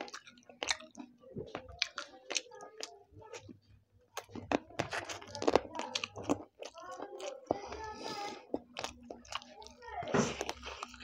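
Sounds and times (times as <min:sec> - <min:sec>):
chewing with wet crackles: 0:00.0 - 0:11.0.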